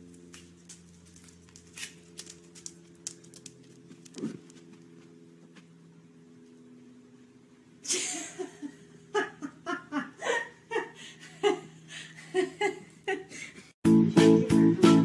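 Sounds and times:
faint steady hum: 0:00.0 - 0:13.8
person laughing hard: 0:07.9 - 0:13.7.

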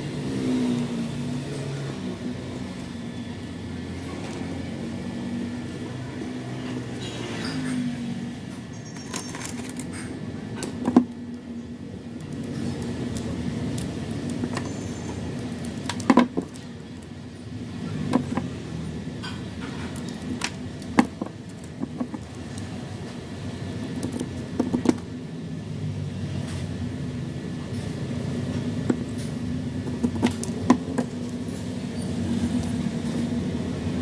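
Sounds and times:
scissors snipping wooden sticks: 0:12.1 - 0:17.1, 0:28.8 - 0:31.5.

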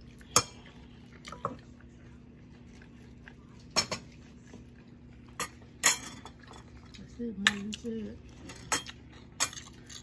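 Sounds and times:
metal spoon clinking on dishes: 0:05.4 - 0:06.7.

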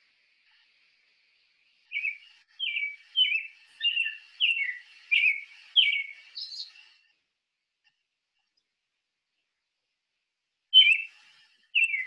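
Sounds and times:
bird whistling descending notes: 0:01.9 - 0:06.7.

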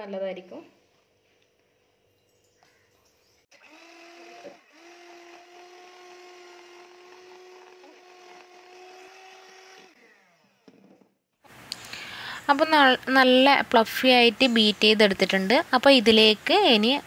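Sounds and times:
electric hand mixer whirring: 0:03.5 - 0:11.0.

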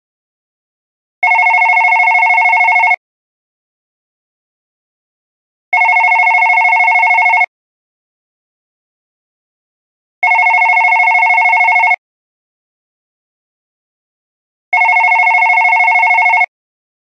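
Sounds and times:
desk phone ringing: 0:01.2 - 0:03.0, 0:05.7 - 0:07.5, 0:10.2 - 0:12.0, 0:14.7 - 0:16.5.

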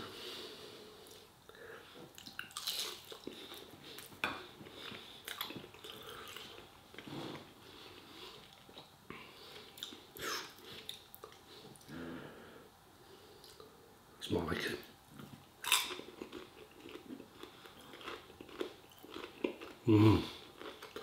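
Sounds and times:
chewing food: 0:02.1 - 0:07.5, 0:15.2 - 0:21.0.

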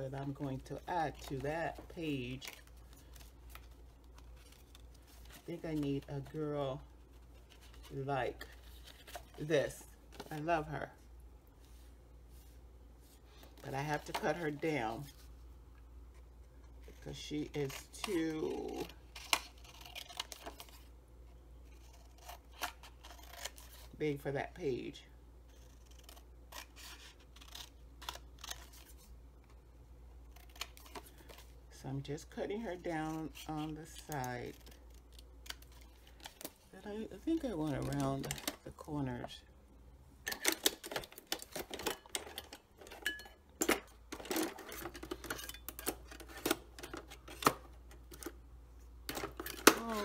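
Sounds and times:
scissors snipping paper: 0:25.6 - 0:28.9.

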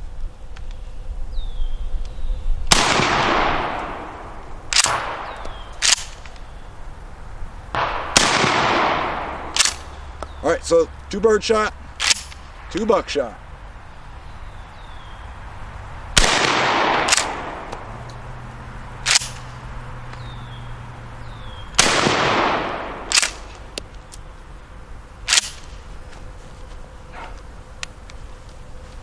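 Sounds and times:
shotgun blasts: 0:02.7 - 0:06.2, 0:07.7 - 0:09.9, 0:16.2 - 0:17.9, 0:21.8 - 0:23.6.

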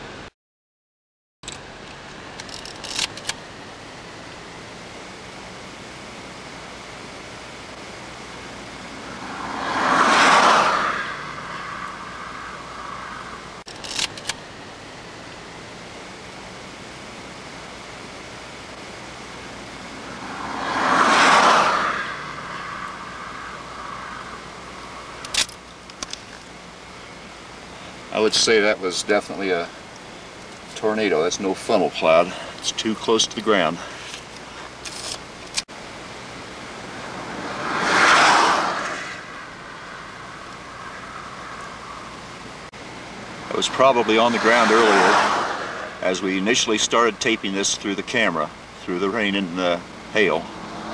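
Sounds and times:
sharp clicks: 0:01.4 - 0:03.5, 0:13.7 - 0:14.4, 0:25.2 - 0:26.4
outdoor rushing noise: 0:06.6 - 0:13.6, 0:18.7 - 0:26.9, 0:35.8 - 0:50.9.

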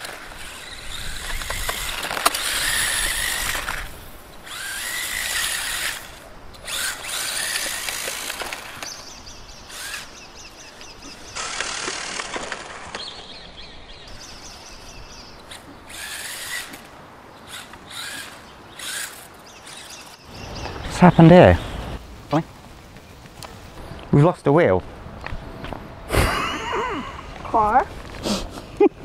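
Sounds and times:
rc car electric motor whining: 0:00.0 - 0:13.2, 0:14.7 - 0:20.2.

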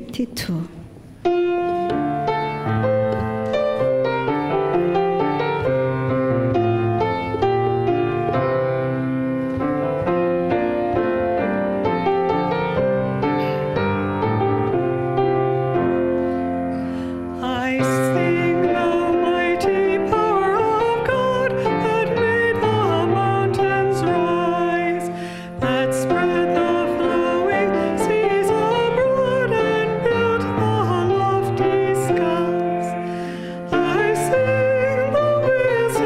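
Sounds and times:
piano playing chords: 0:00.8 - 0:36.0
person singing: 0:17.3 - 0:36.0.

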